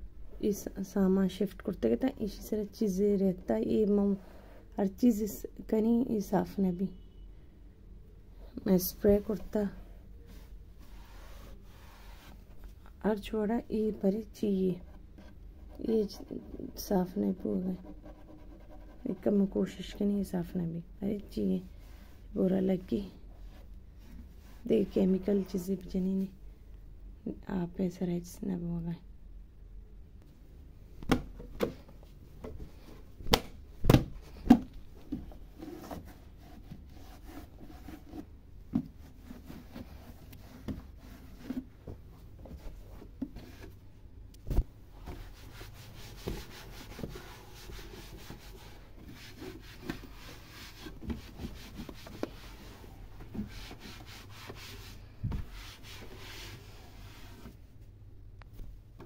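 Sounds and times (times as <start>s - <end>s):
cloth rubbing wooden shelves: 10.3s - 12.7s, 44.9s - 57.6s.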